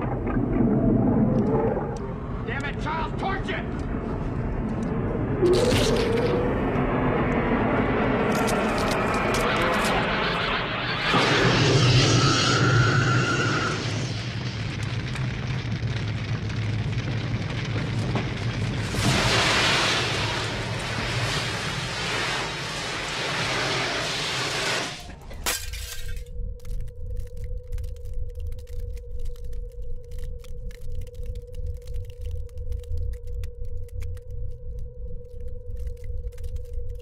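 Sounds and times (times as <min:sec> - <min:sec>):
flamethrower roaring: 0:03.9 - 0:25.3.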